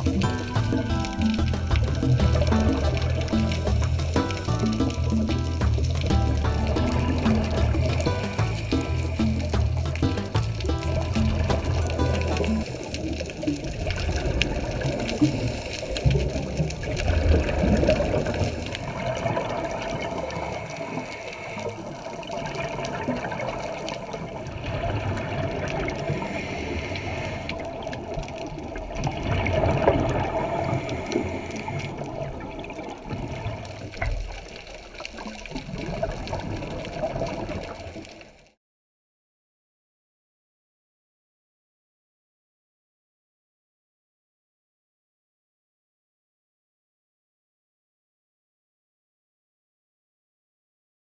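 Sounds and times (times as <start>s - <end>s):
exhaled bubbles surging: 0.0s - 38.4s
muffled underwater noise: 0.0s - 38.4s.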